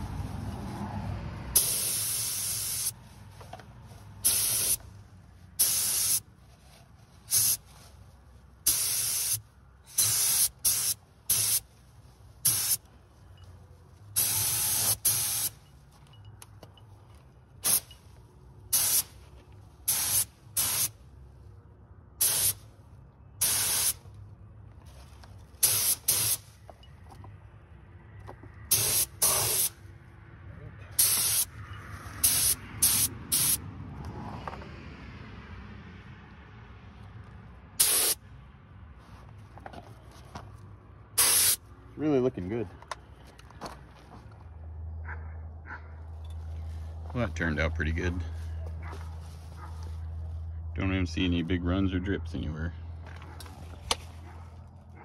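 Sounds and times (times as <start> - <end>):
spray gun hissing bursts: 1.6 - 3.0, 4.2 - 4.8, 5.6 - 6.2, 7.3 - 7.6, 8.7 - 11.6, 12.4 - 12.8, 14.2 - 15.6, 18.7 - 19.1, 19.9 - 20.9, 22.2 - 22.6, 23.4 - 24.0, 25.6 - 26.4, 28.7 - 29.7, 31.0 - 31.5, 32.2 - 33.6, 37.8 - 38.2, 41.2 - 41.6.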